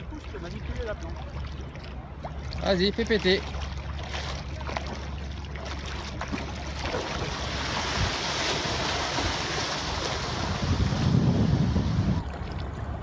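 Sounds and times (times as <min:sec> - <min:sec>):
water rushing and splashing: 0:00.0 - 0:13.0
wind on microphone: 0:06.8 - 0:13.0.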